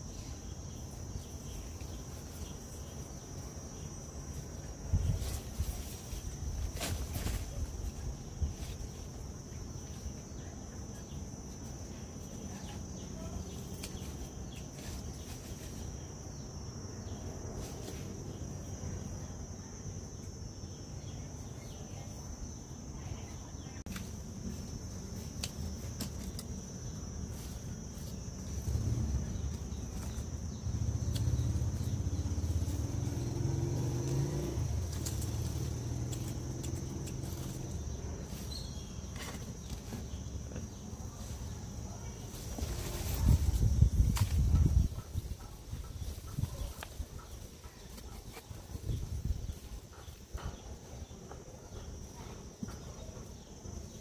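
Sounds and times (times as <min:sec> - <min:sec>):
leaves rustling and snapping: 0:05.2 - 0:08.0, 0:13.5 - 0:16.0, 0:23.9 - 0:40.1.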